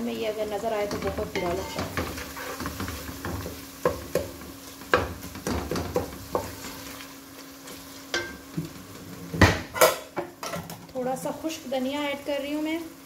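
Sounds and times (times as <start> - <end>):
food sizzling in oil: 0.0 - 13.0
wooden spoon scraping a pot: 0.8 - 10.0.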